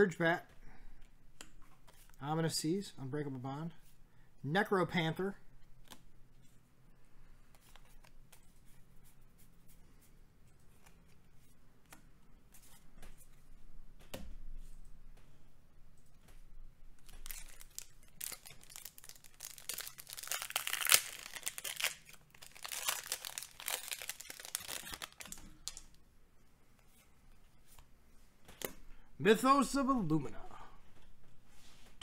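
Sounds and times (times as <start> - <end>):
foil wrapper tearing and crinkling: 17.0 - 25.9.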